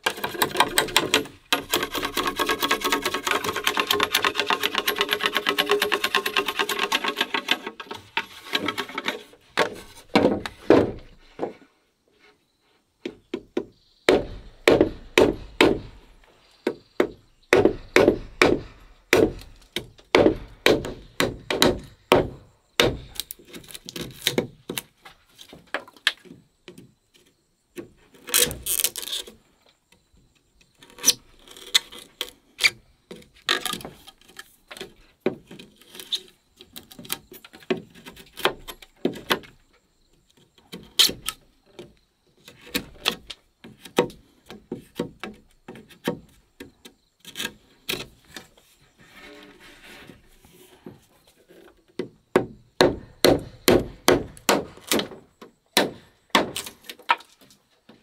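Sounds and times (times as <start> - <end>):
scraping rasp: 0.0 - 10.3, 47.2 - 51.7
wood chopping strikes: 9.6 - 11.1, 13.6 - 16.1, 16.7 - 24.8, 52.3 - 55.2, 55.8 - 57.3.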